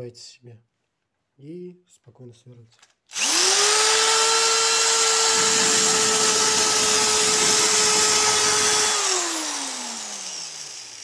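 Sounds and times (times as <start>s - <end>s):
cordless drill grinding glass: 3.2s - 11.0s.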